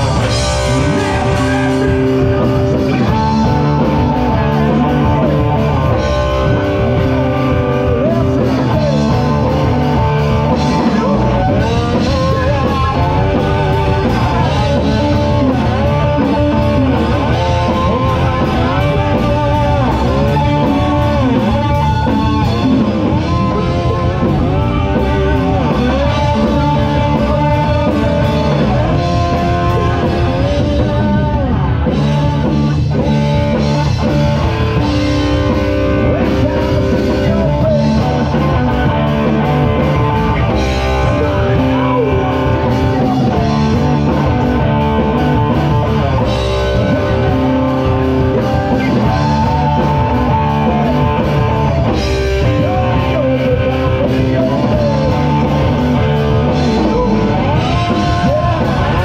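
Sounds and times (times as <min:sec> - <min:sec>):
bass guitar: 0:00.0 - 0:59.0
drum kit: 0:00.0 - 0:59.0
electric guitars: 0:00.0 - 0:59.0
person singing: 0:00.0 - 0:59.0.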